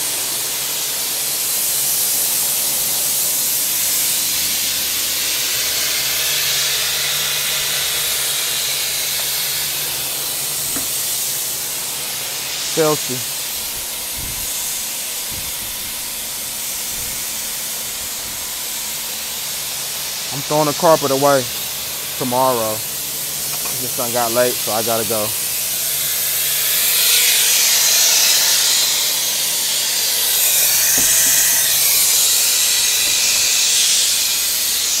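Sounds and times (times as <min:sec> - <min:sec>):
machinery hiss and hum: 0:00.0 - 0:35.0
brief knock: 0:10.7 - 0:11.0.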